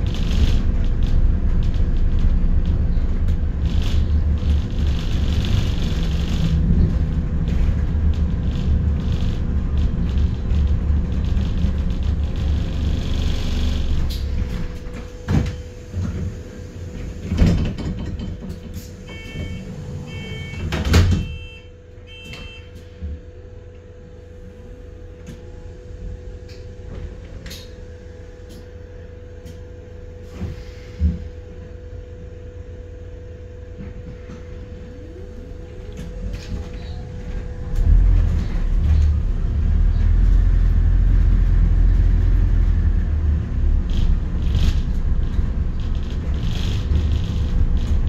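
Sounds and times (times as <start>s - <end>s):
bus engine rumbling: 0.0s - 48.0s
short electronic beeps: 19.1s - 22.7s.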